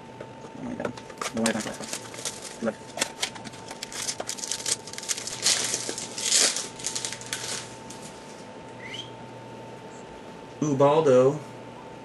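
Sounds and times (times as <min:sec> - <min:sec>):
wrapper crinkling and tearing: 0:01.2 - 0:08.4.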